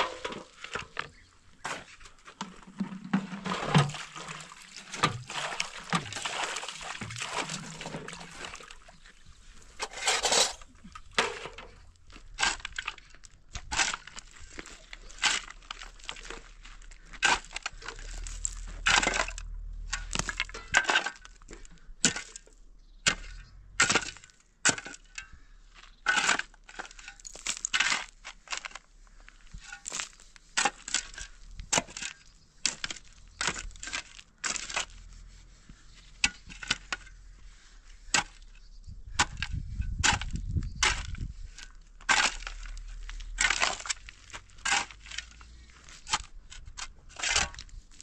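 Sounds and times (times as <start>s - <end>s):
shovel digging into stony soil: 1.6s - 8.9s, 9.7s - 21.3s, 26.1s - 28.8s, 29.5s - 35.2s, 38.0s - 38.6s, 39.2s - 48.0s.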